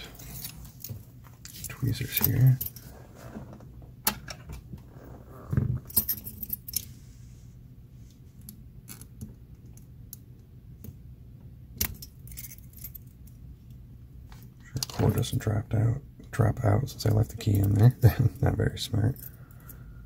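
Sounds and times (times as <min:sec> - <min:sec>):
metallic clicks of lock and keys: 0:11.8 - 0:13.4.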